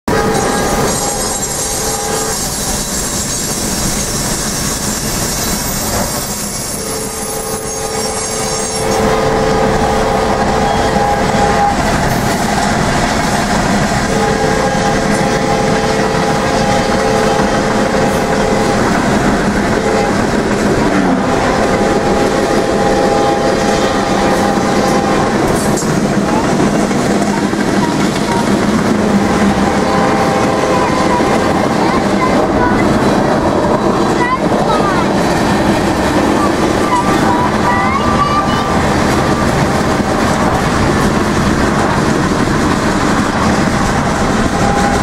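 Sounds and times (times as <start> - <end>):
train rumble and wheel clatter: 0.0 - 45.0
locomotive horn blasts: 0.1 - 2.9, 6.2 - 12.9, 14.0 - 34.1, 43.1 - 45.0.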